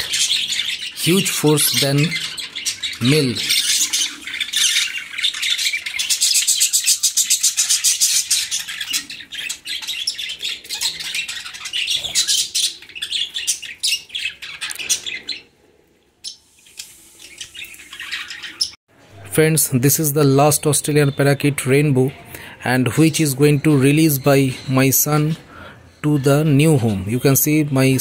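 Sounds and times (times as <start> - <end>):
budgerigars chirping: 0.0 - 15.5, 16.2 - 18.8.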